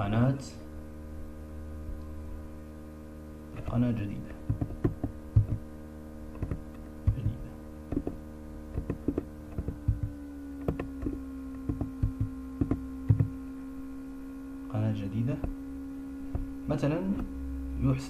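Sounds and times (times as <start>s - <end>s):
steady electrical hum: 0.0s - 18.0s.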